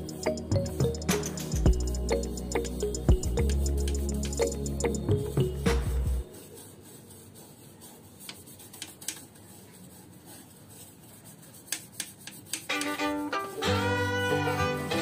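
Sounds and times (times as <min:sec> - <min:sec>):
background music: 0:00.0 - 0:06.3, 0:12.7 - 0:15.0
brush scrubbing metal: 0:06.2 - 0:13.6.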